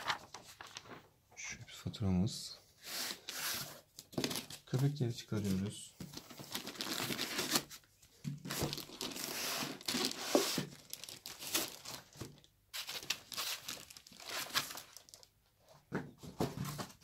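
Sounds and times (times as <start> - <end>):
foam and plastic crinkling: 4.2 - 7.7, 8.5 - 15.3.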